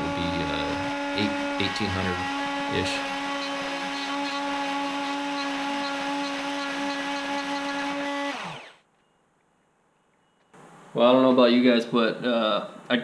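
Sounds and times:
router motor whining: 0.0 - 8.8.

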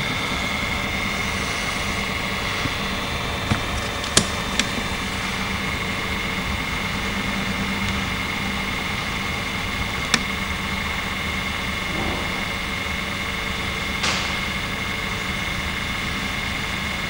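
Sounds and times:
diesel engine idling: 0.0 - 17.0
sharp click: 14.0 - 14.5.

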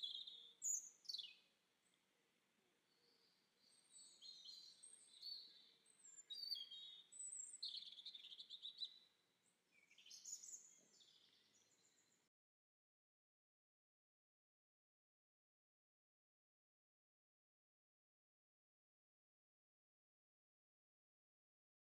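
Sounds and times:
songbird chirps and trills: 0.0 - 12.3.

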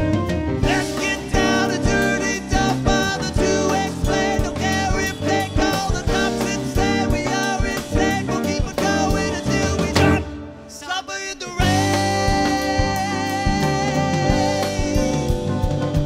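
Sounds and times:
live band playing: 0.0 - 16.0.

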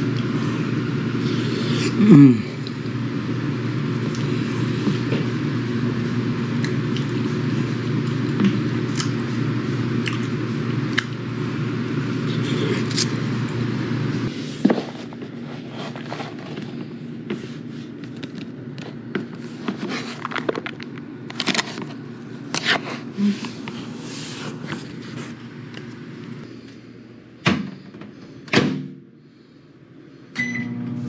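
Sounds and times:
steady low hum: 0.0 - 31.0
plastic packaging crinkling: 19.8 - 22.0.

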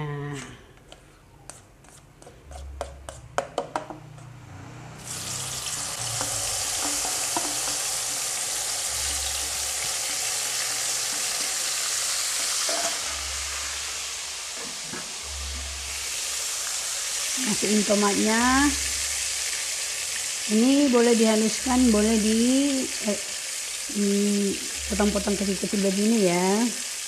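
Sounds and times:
scraping paste into wok: 0.8 - 3.3
spatula tapping steel bowl: 0.8 - 4.3
paste sizzling in hot oil: 5.0 - 27.0.

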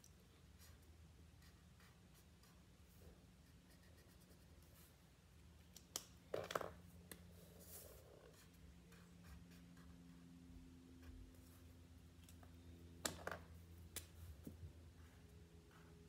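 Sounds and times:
marker scratching on paper: 7.4 - 10.2.

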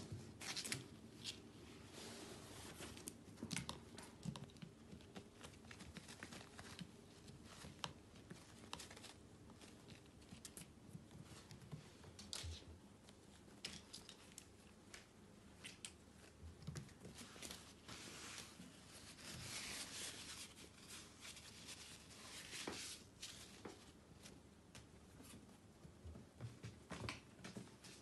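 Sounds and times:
paws and paper ball tapping on wood: 3.0 - 17.5
crumpled paper crinkling: 5.0 - 10.7.

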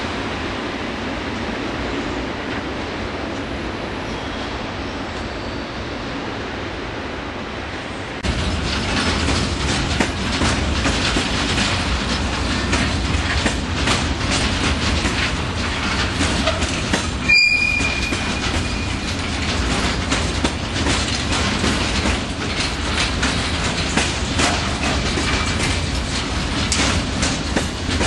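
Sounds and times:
freight train rumble: 0.0 - 28.0
wheels clattering over rail joints: 8.2 - 28.0
wheel squeal: 16.4 - 19.2.

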